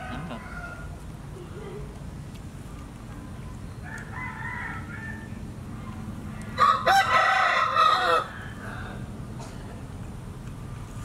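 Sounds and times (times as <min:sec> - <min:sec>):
rooster crowing: 0:00.0 - 0:00.9, 0:03.8 - 0:05.4, 0:06.6 - 0:09.1.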